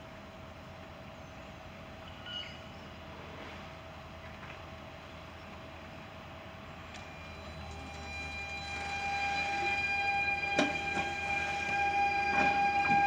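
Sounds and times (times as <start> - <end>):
electric train motor whine: 6.2 - 13.0.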